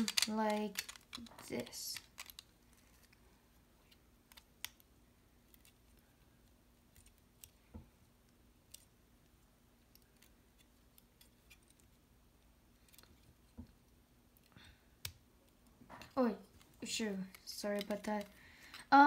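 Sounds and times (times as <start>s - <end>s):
plastic bricks clicking: 0.0s - 3.0s.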